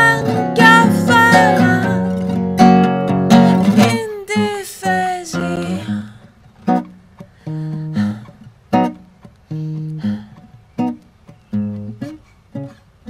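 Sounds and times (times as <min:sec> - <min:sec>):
person singing wordlessly: 0:00.0 - 0:02.2, 0:03.6 - 0:06.2
acoustic guitar plucked chords: 0:00.0 - 0:12.9.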